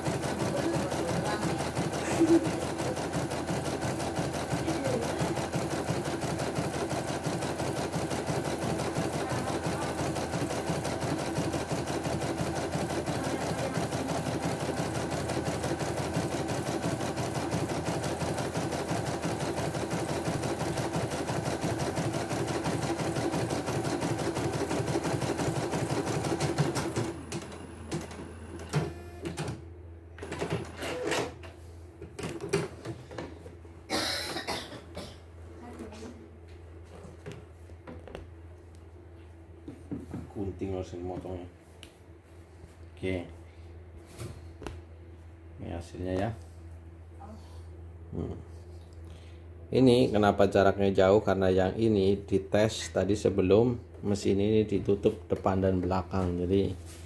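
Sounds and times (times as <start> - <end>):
embroidery machine stitching: 0.0 - 29.6, 30.2 - 31.4.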